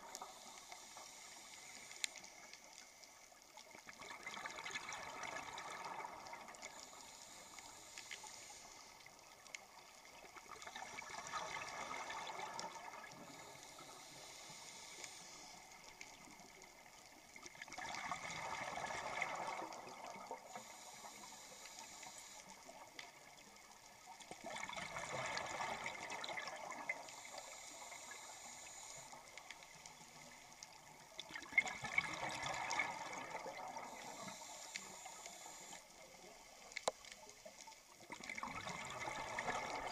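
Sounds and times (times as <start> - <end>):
regulator hiss on inhale: 0.0 - 3.8, 4.5 - 31.4, 32.0 - 37.6.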